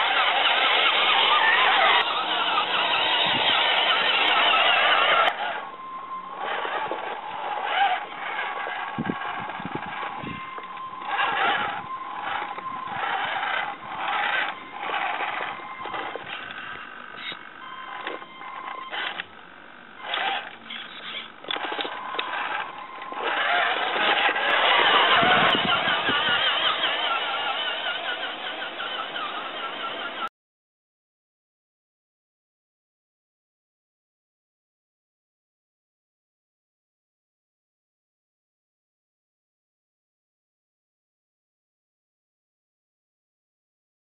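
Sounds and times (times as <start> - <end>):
tyres scraping on stones: 0.0 - 5.4, 20.1 - 30.2
tyres crunching on gravel: 0.0 - 5.6, 20.2 - 29.4
small electric motor whining: 0.0 - 19.4, 20.0 - 30.3.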